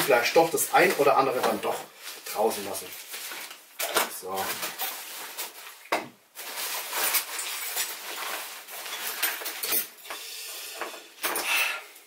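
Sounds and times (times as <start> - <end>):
small items clinking together: 6.4 - 10.2.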